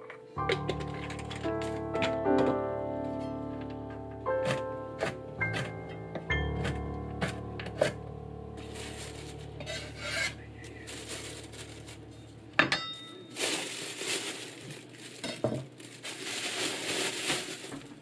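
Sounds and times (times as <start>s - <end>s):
plastic bag rustling: 0.6s - 2.0s, 8.5s - 18.0s.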